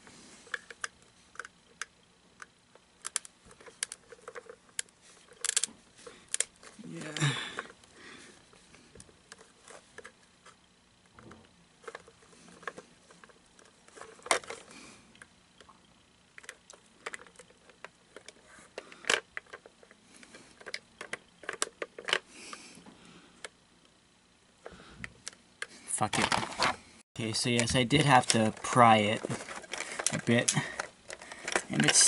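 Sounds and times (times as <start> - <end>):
hard plastic cracking and snapping: 27.5 - 32.0.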